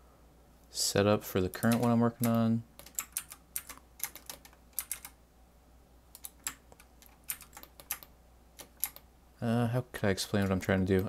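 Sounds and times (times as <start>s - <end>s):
keyboard keystrokes: 1.5s - 5.2s, 6.1s - 9.0s.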